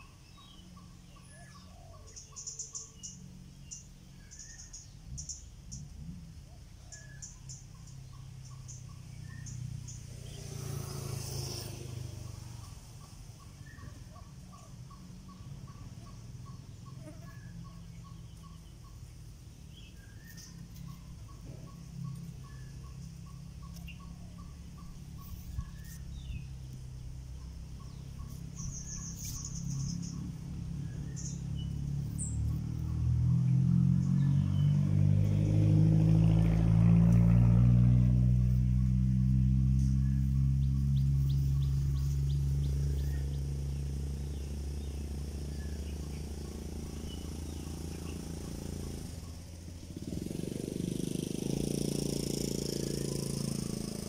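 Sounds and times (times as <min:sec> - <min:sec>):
faint bird chirps: 0:00.0 - 0:34.9, 0:39.8 - 0:49.6
vehicle engine hum: 0:00.0 - 0:54.0.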